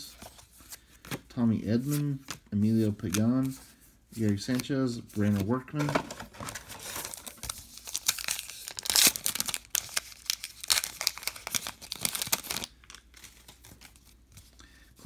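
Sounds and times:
wrapper tearing and crinkling: 0:06.4 - 0:14.0.

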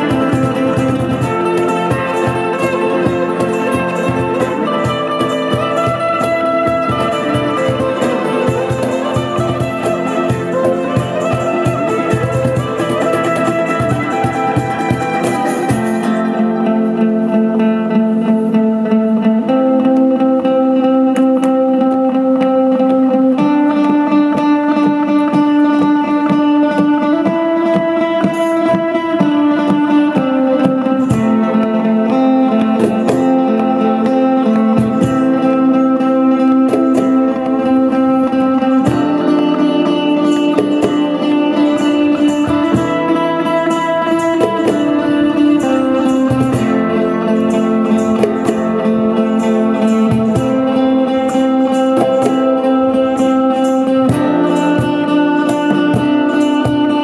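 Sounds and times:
cajon knocks: 0:00.0 - 0:16.2, 0:22.9 - 0:35.4
acoustic guitar playing: 0:00.0 - 0:57.0.

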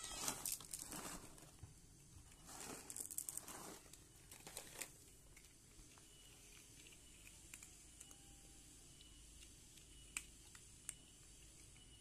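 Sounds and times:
plastic bag crinkling: 0:00.0 - 0:01.6, 0:02.4 - 0:05.1.

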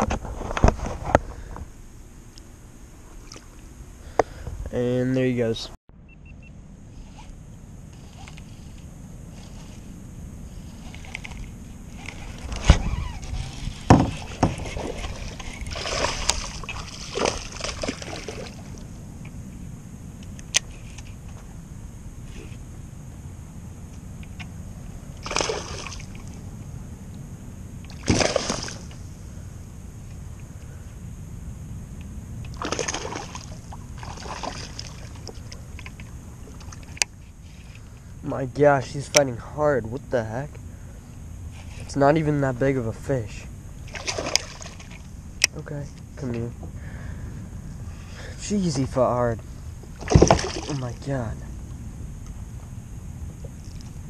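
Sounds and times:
wind rumble on microphone: 0:07.8 - 0:25.2
water splashing against kayak: 0:12.0 - 0:18.9, 0:25.2 - 0:26.3, 0:27.9 - 0:29.0, 0:32.5 - 0:37.0, 0:43.8 - 0:45.1, 0:49.9 - 0:50.9.

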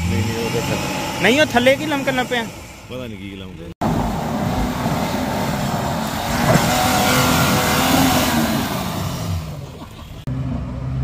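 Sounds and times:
off-road engine revving: 0:00.0 - 0:11.0
steady engine hum: 0:00.0 - 0:11.0.

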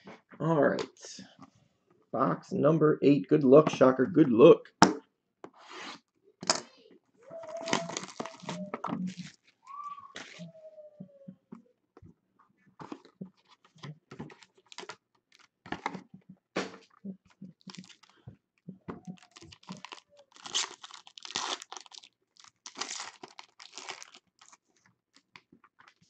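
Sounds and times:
foil wrapper crinkling and tearing: 0:07.4 - 0:09.5, 0:14.3 - 0:15.5, 0:17.6 - 0:18.2, 0:19.0 - 0:26.0
cardboard box being opened: 0:07.5 - 0:09.4.

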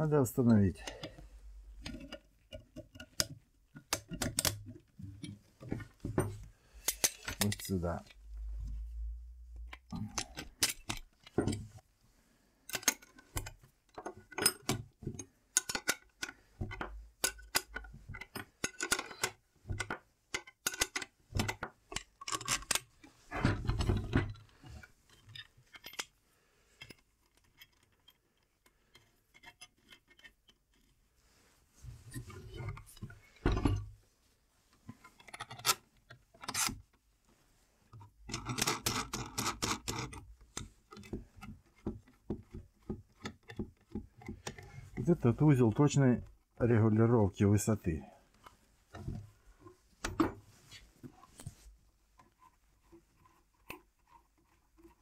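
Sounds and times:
metal fittings clicking and clinking: 0:06.8 - 0:08.2, 0:15.5 - 0:23.0.

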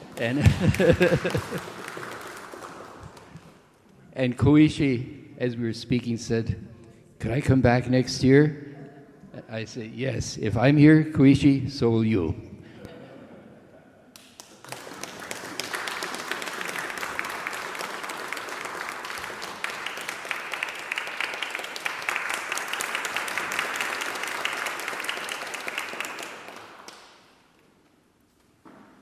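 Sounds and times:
audience applauding: 0:00.0 - 0:03.7, 0:14.2 - 0:27.4.

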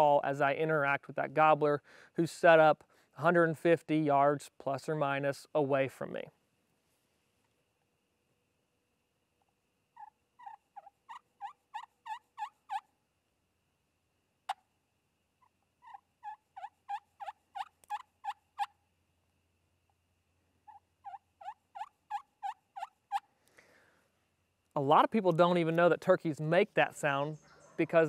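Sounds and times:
turkey call yelps: 0:10.0 - 0:12.9, 0:15.4 - 0:18.8, 0:20.6 - 0:23.3, 0:27.4 - 0:28.0.

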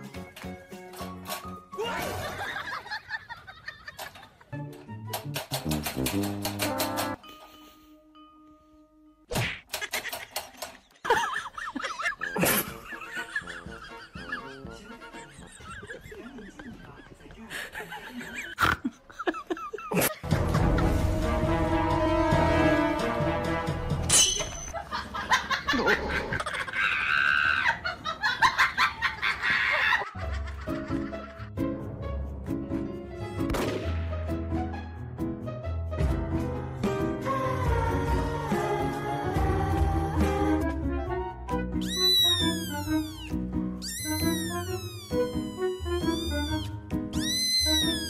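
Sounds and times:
people laughing: 0:01.8 - 0:04.6, 0:09.7 - 0:20.9, 0:24.7 - 0:31.6
loud whack: 0:33.5 - 0:34.0.

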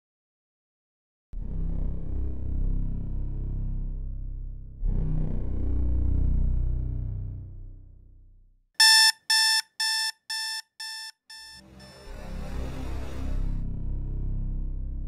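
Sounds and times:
alarm clock beeping: 0:08.8 - 0:12.1.

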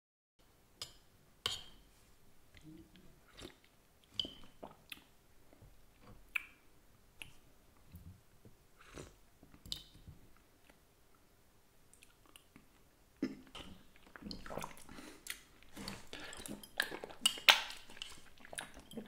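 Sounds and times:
mouth sounds eating soup: 0:11.9 - 0:19.0.

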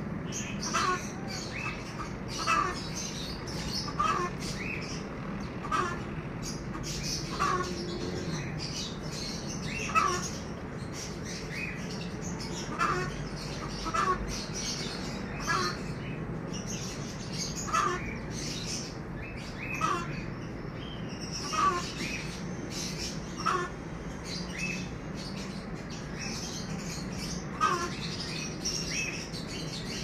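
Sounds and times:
small birds chirping: 0:00.0 - 0:30.0
poultry squawking: 0:00.3 - 0:16.2, 0:16.8 - 0:25.4, 0:26.0 - 0:29.9.

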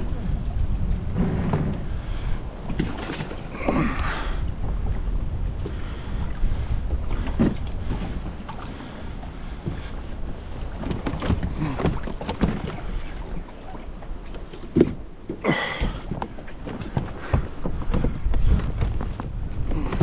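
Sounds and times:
wind rumble on microphone: 0:00.0 - 0:20.0
gear knocking on plastic kayak: 0:14.7 - 0:20.0.

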